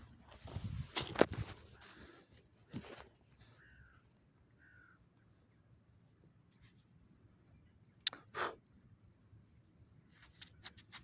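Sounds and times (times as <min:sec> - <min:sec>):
footsteps on stony ground: 0:00.0 - 0:03.6
falling bird calls: 0:03.3 - 0:05.5.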